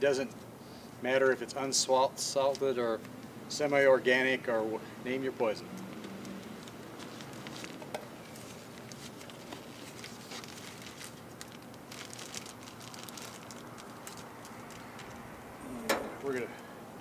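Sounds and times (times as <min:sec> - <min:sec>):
steady outdoor hiss: 0:00.0 - 0:17.0
plastic bag crinkling: 0:06.2 - 0:15.4.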